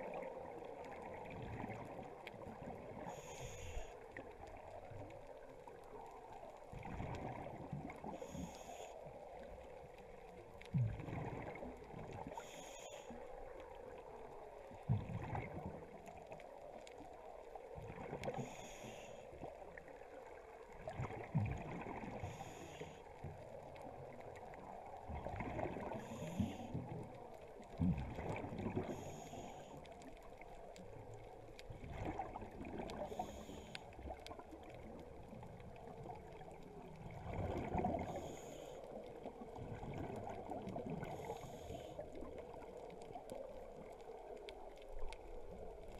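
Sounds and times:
exhale bubbles gurgling: 0.0 - 45.9
regulator inhale hiss: 3.0 - 4.0, 8.1 - 9.2, 12.3 - 13.3, 18.3 - 19.3, 22.2 - 23.1, 25.9 - 26.9, 28.8 - 29.9, 33.0 - 34.0, 38.0 - 39.0, 41.1 - 42.1.

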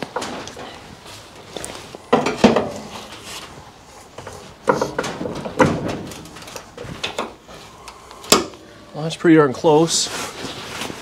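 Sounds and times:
metal clanks and knocks: 2.1 - 3.1, 4.2 - 7.4.

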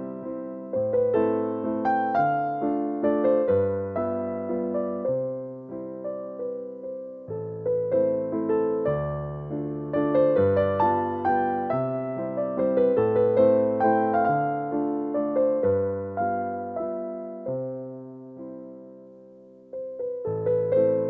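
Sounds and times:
gentle piano melody: 0.0 - 21.0.

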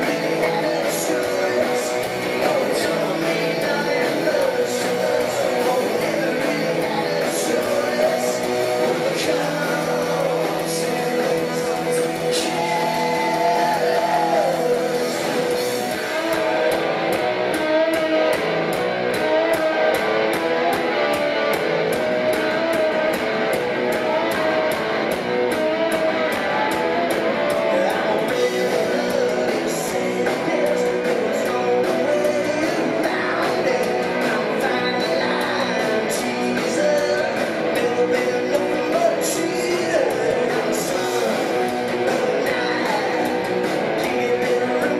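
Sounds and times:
person singing: 0.0 - 17.1, 26.9 - 44.9
bass: 0.0 - 44.9
drums: 0.0 - 44.9
electric guitar: 0.0 - 44.9.

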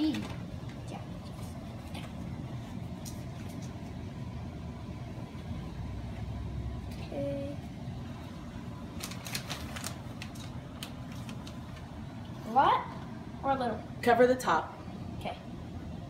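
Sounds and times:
plastic bag crinkling: 8.9 - 11.9.

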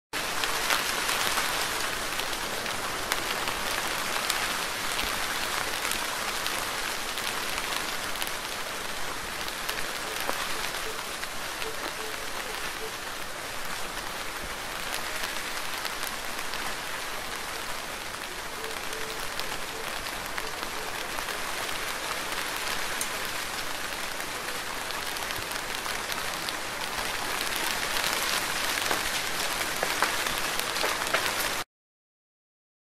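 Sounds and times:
steady rain falling: 0.2 - 31.7
raindrops ticking: 14.8 - 31.6.

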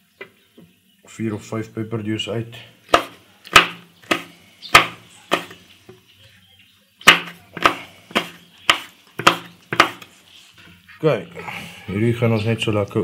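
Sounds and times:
knife chopping on wooden board: 2.9 - 5.6, 7.0 - 10.1.

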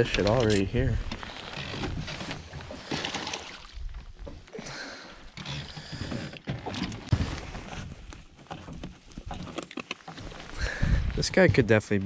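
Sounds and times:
water lapping against boat hull: 0.0 - 12.0
short knocks and clatters: 11.1 - 12.0.

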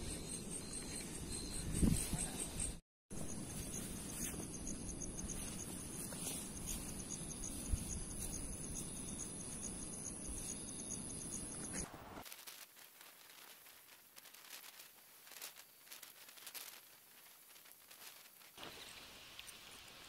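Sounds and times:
high-pitched insect trill: 0.0 - 11.8
pulsing insect chirp: 0.0 - 11.9.

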